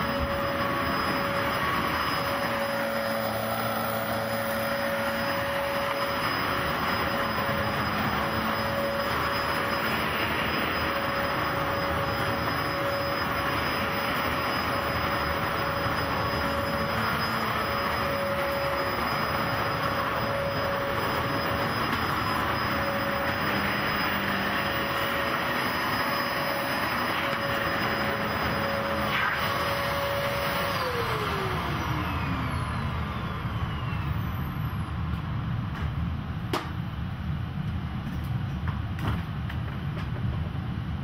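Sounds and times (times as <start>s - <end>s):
vacuum cleaner motor whine: 0.0s - 35.6s.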